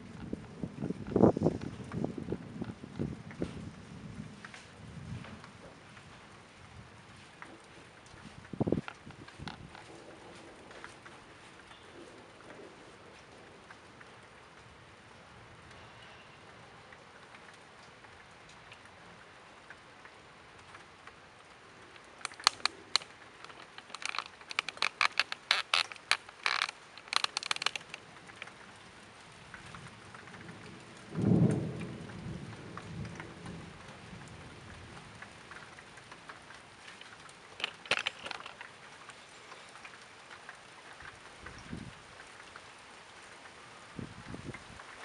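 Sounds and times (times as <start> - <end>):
low rumble of thunder: 0.0 - 13.7, 28.6 - 36.8
rain hiss: 0.0 - 45.0
ticks of close raindrops: 0.0 - 45.0.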